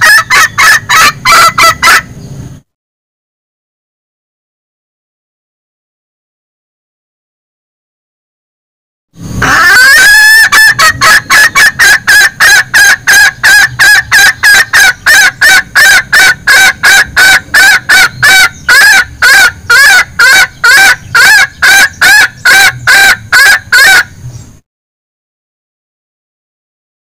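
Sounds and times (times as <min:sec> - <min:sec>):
hen clucking rapidly: 0:00.0 - 0:02.1, 0:09.4 - 0:24.2.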